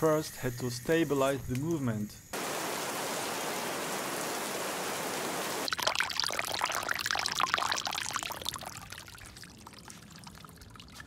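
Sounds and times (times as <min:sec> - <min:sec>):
water drops on leaves: 0:02.4 - 0:11.0
water splashing on grass and stones: 0:02.4 - 0:11.0.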